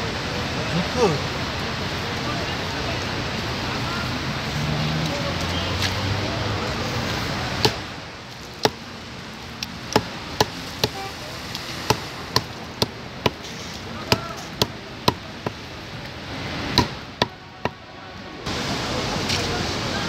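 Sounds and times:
knife chopping on wooden block: 0:09.9 - 0:11.0, 0:11.9 - 0:13.4, 0:14.1 - 0:15.6, 0:16.8 - 0:17.8.

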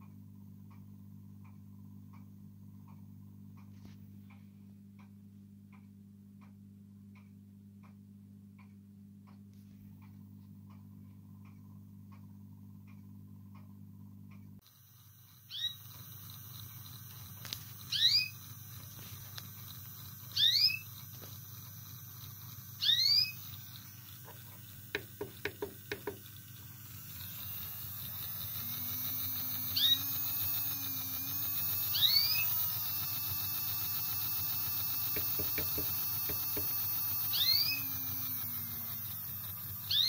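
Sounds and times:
model locomotive motor hum: 0:14.6 - 0:40.0
canary squawking: 0:17.9 - 0:18.3, 0:20.4 - 0:20.8, 0:22.8 - 0:23.4.

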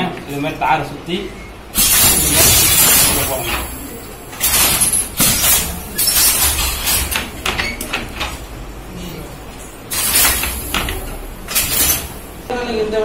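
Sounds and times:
handloom clacking and knocking: 0:01.8 - 0:08.5, 0:09.9 - 0:12.2.

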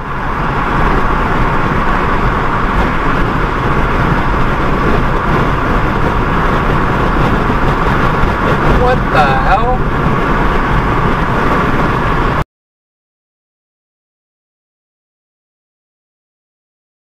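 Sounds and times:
wind noise: 0:00.0 - 0:12.4.

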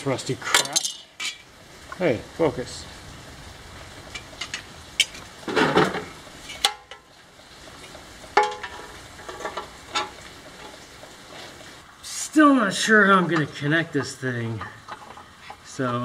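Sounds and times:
sheet metal clinks and scrapes: 0:00.4 - 0:01.5, 0:14.5 - 0:15.8
metal plate clanking: 0:04.1 - 0:07.0, 0:08.3 - 0:10.8, 0:13.2 - 0:16.0.

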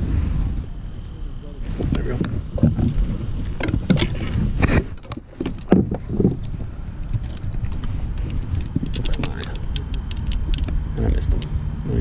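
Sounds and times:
wind rumble on microphone: 0:00.0 - 0:12.0
fishing rod knocks and rustles: 0:02.2 - 0:10.8.

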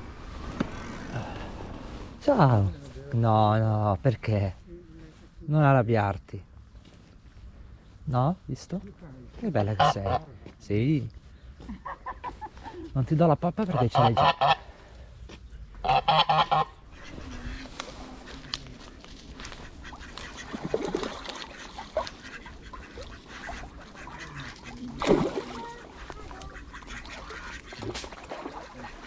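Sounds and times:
goose honking: 0:09.6 - 0:10.4, 0:13.7 - 0:14.6, 0:15.8 - 0:29.0.

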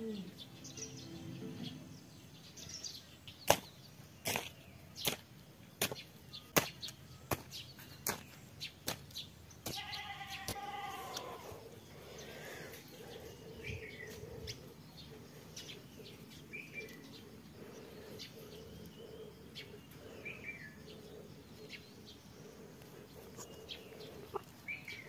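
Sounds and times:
farm animal bleating: 0:09.7 - 0:11.6
faint bird chirps: 0:09.8 - 0:25.0.

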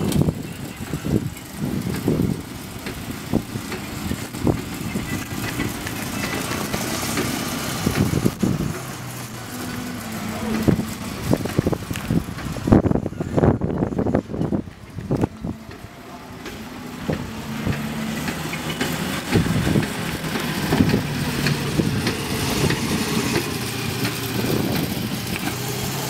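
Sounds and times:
small car motor rumbling: 0:00.0 - 0:26.0.

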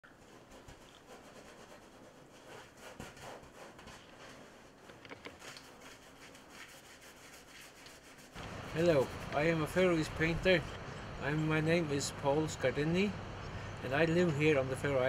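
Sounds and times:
palette knife scraping canvas: 0:00.2 - 0:09.4.

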